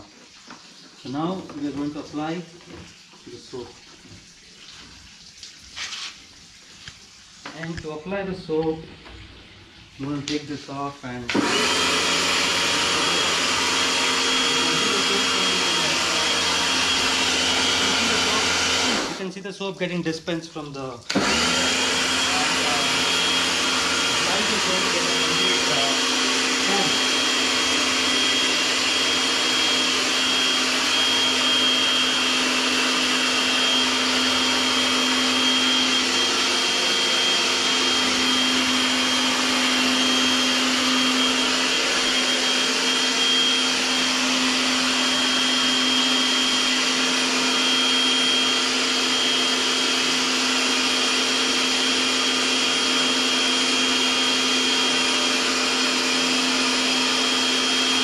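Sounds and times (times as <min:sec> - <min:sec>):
pressure washer motor humming: 0:11.1 - 0:19.3, 0:21.0 - 0:58.0
water jet hissing: 0:11.8 - 0:19.3, 0:20.6 - 0:26.0.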